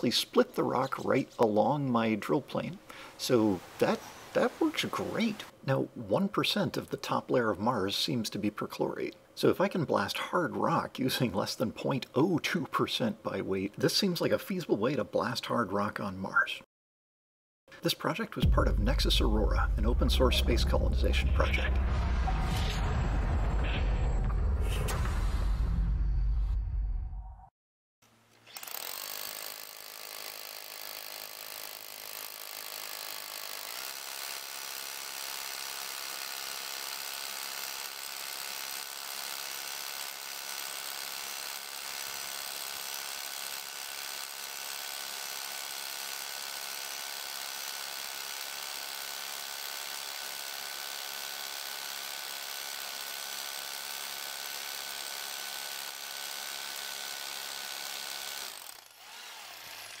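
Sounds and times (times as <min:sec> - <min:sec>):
power drill boring into rock: 0:28.5 - 1:00.0.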